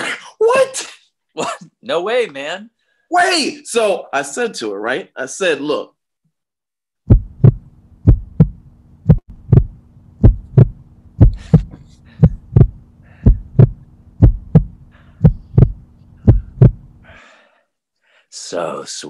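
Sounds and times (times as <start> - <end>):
heartbeat thumps: 7.0 - 17.0
steady low hum: 7.1 - 17.2.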